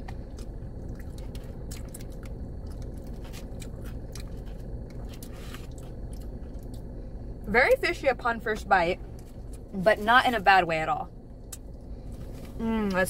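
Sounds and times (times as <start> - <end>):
chewing with wet mouth clicks: 0.0 - 6.9, 11.4 - 11.9
low rumble inside car: 0.0 - 13.0.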